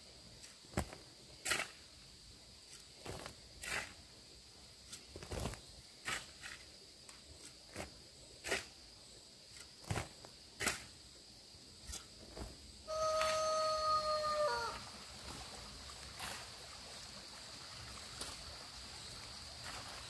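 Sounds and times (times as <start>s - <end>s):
high insect drone: 0.0s - 20.0s
scuffs and soft thuds on dirt: 0.3s - 1.9s, 2.6s - 4.1s, 4.7s - 8.8s, 9.5s - 11.0s, 11.8s - 12.8s, 15.2s - 20.0s.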